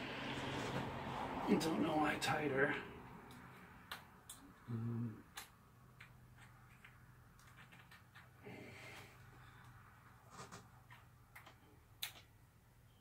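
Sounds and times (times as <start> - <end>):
person grunting: 4.7 - 5.2.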